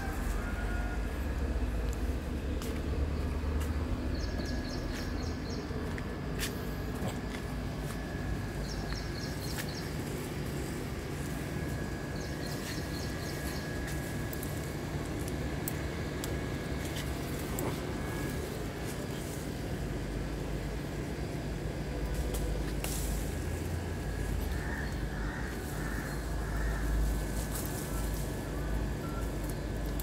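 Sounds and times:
branches and leaves rustling: 0.0s - 30.0s
steady low motor hum: 0.0s - 30.0s.

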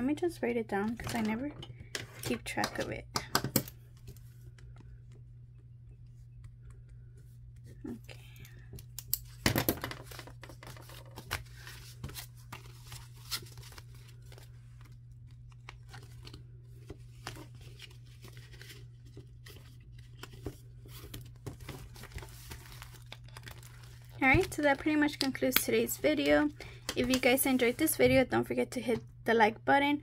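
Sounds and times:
paper and plastic rustling: 9.9s - 28.2s.

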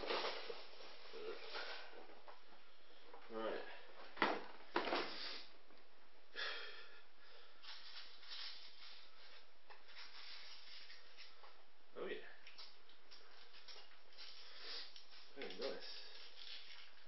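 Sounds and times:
soft rustle of handling: 12.5s - 17.0s.

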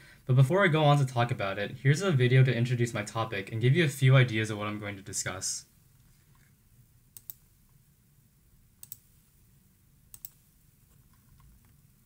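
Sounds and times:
computer mouse clicking: 7.2s - 7.4s, 8.8s - 9.1s, 10.1s - 11.8s.

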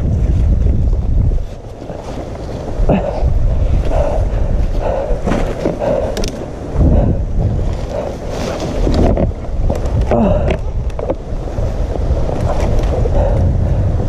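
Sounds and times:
low rumble: 0.0s - 14.0s
person grunting and breathing: 2.8s - 8.3s, 10.0s - 10.8s, 13.0s - 14.0s
rustling brush: 7.4s - 13.3s.

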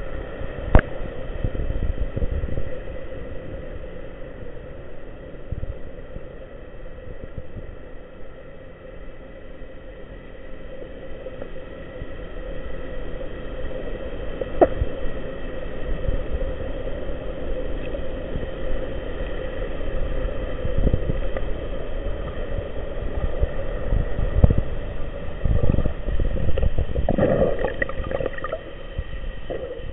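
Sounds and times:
muffled underwater rumble and hiss: 0.0s - 29.9s
water splashing: 27.0s - 28.8s.

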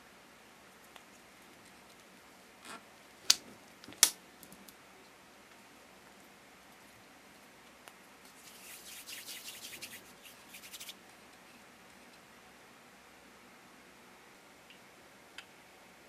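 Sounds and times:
dough rubbing on plastic mat: 8.3s - 11.0s.

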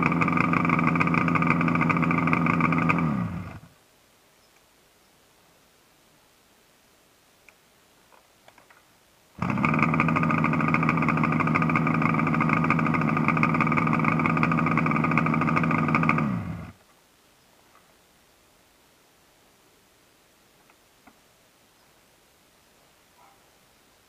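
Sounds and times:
motorcycle engine idling: 0.0s - 3.7s, 9.4s - 16.8s
faint clicks: 7.4s - 8.9s.

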